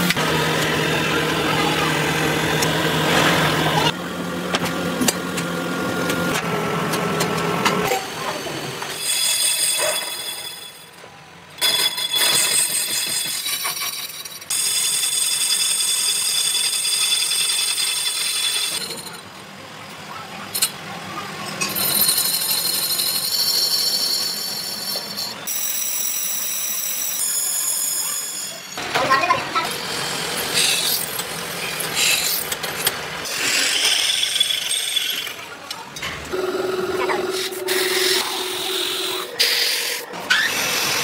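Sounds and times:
lathe tool screeching on metal: 7.9 - 10.9, 21.7 - 28.8, 29.6 - 32.5, 33.2 - 35.4, 36.4 - 41.0.

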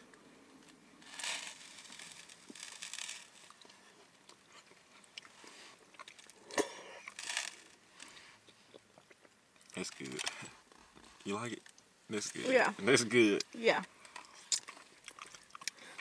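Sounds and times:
slurping and chewing noodles: 14.1 - 16.0.

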